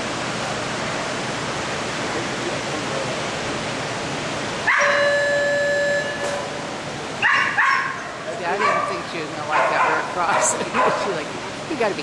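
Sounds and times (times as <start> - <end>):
held note: 4.7 - 6.8.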